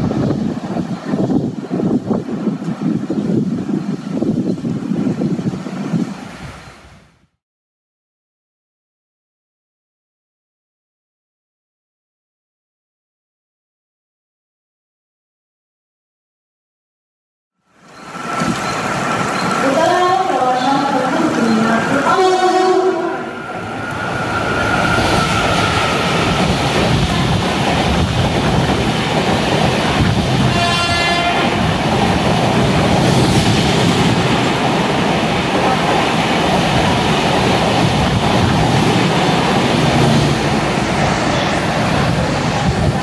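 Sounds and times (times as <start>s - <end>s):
train rumble and wheel noise: 0.0s - 7.0s, 17.7s - 43.0s
heavy rain: 17.8s - 43.0s
train horn blast: 22.0s - 24.0s, 30.4s - 31.7s.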